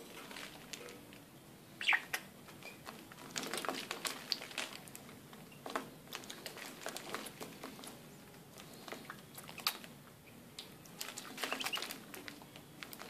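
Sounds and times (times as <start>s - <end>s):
bird chirp: 1.8s - 2.2s, 11.4s - 12.0s.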